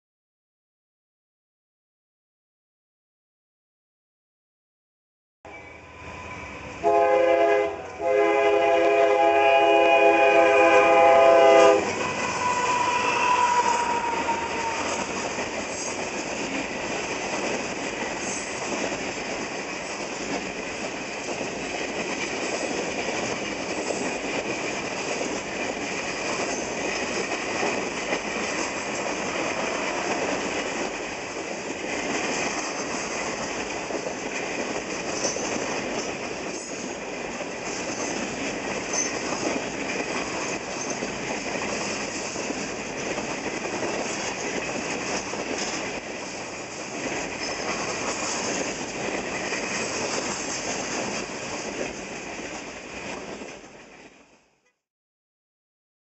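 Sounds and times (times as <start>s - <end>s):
train cars rumbling past: 5.5s - 52.5s
locomotive air horn: 6.8s - 15.0s.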